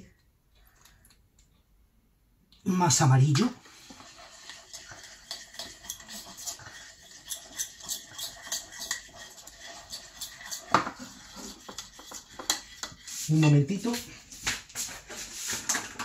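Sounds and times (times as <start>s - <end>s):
spoon scraping icing on plate: 3.5s - 16.0s.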